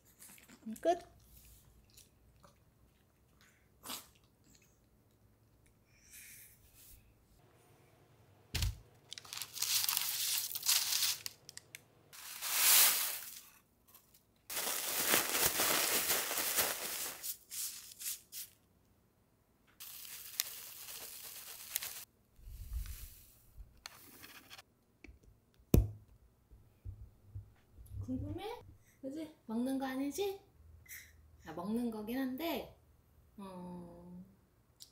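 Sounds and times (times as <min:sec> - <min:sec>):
plastic bag crinkling: 0:08.6 - 0:11.6, 0:12.2 - 0:13.6, 0:14.5 - 0:18.4, 0:19.8 - 0:22.1.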